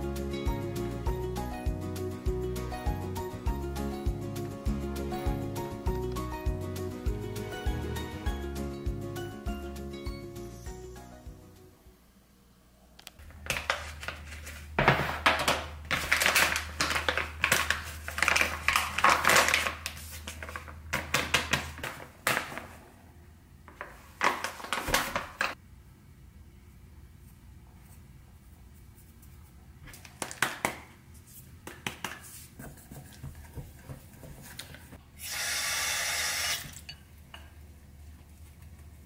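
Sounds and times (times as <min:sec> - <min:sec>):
plastic bag crinkling: 0:13.2 - 0:22.7.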